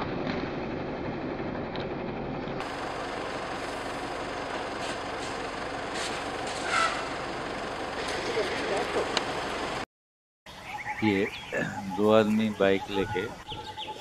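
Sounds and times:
road traffic: 0:00.0 - 0:09.9, 0:10.5 - 0:14.0
short high squeal: 0:06.6 - 0:07.1.

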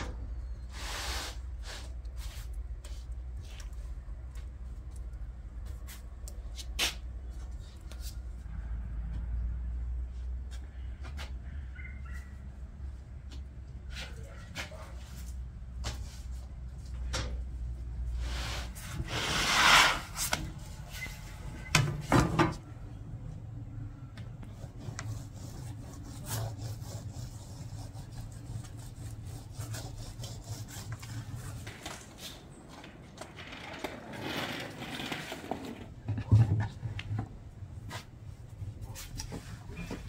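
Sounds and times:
rubbing and scraping on wood: 0:18.2 - 0:21.0, 0:24.4 - 0:32.6.

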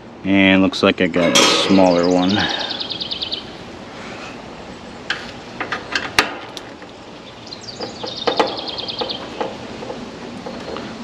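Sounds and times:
songbird trilling: 0:01.3 - 0:03.6, 0:07.1 - 0:09.8.

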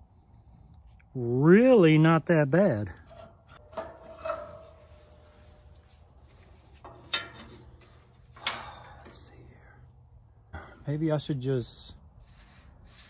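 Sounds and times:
faint metallic ringing: 0:02.9 - 0:09.9.

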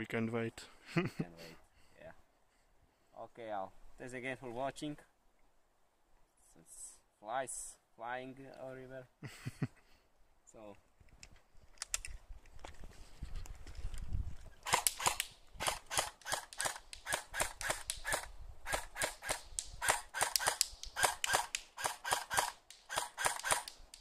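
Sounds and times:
airsoft rifle shots: 0:14.6 - 0:24.0.

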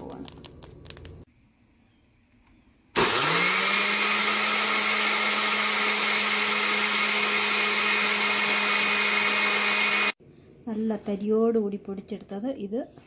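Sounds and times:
blender motor humming: 0:03.0 - 0:10.2.

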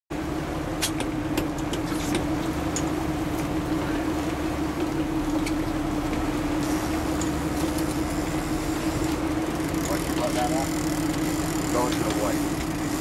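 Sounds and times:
boat engine humming: 0:00.1 - 0:13.0.

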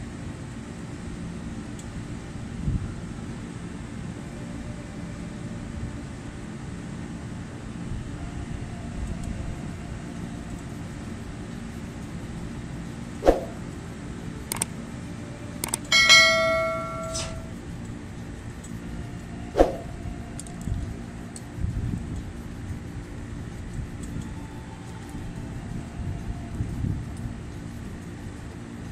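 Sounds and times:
steady background rumble: 0:00.0 - 0:28.9
small clicks: 0:14.4 - 0:14.8, 0:15.6 - 0:15.9
bell-like notification chime: 0:15.9 - 0:17.5.

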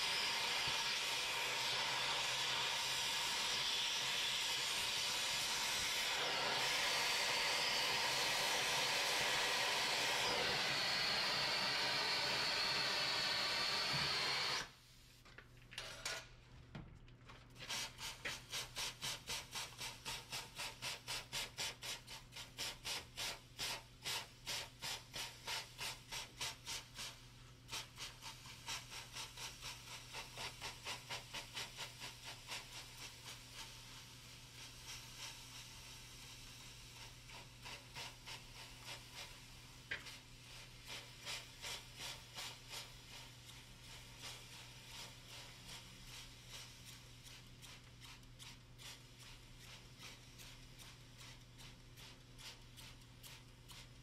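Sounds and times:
cutting torch hissing: 0:00.0 - 0:14.8
water hissing into steam: 0:00.0 - 0:14.8, 0:27.7 - 0:48.1.

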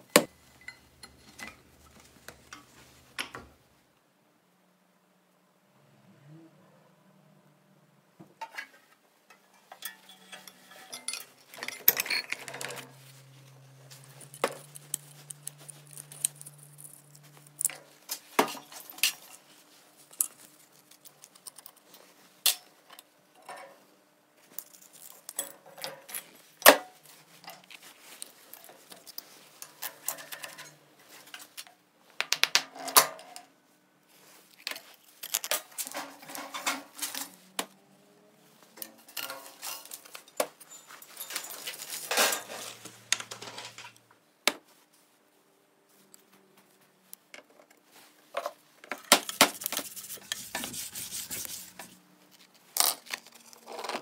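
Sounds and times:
metal parts clanking: 0:08.4 - 0:13.0, 0:38.8 - 0:44.0.

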